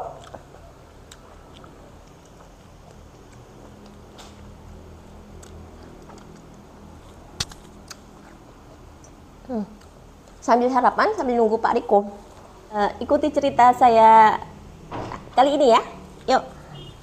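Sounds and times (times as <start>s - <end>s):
faint chewing: 0.0s - 4.5s, 5.3s - 10.4s.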